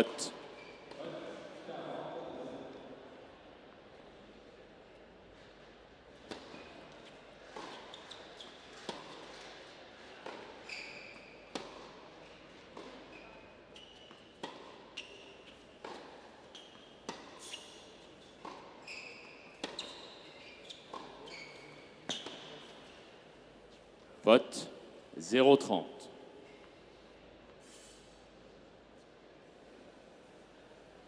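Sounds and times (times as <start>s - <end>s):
shoe squeaks: 0.0s - 1.0s, 7.6s - 8.9s, 10.6s - 11.6s, 13.1s - 15.6s, 16.4s - 23.1s
tennis ball bouncing: 6.2s - 10.5s, 11.5s - 12.0s, 15.4s - 17.5s, 18.4s - 18.8s, 19.5s - 20.0s, 20.9s - 21.3s
tennis ball hit by rackets: 11.5s - 11.9s.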